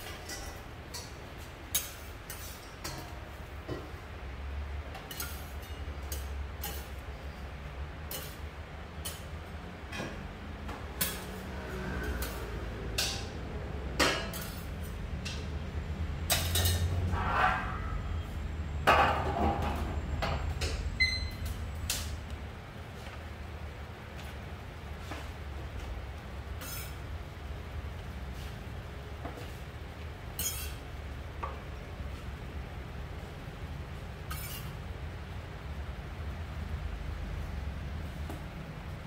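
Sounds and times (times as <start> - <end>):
metal spatulas scraping on griddle: 0.0 - 3.2, 5.0 - 7.4, 8.0 - 9.3, 11.0 - 13.4, 14.0 - 15.5, 16.3 - 18.3, 26.6 - 27.0, 30.3 - 30.8, 34.2 - 34.8.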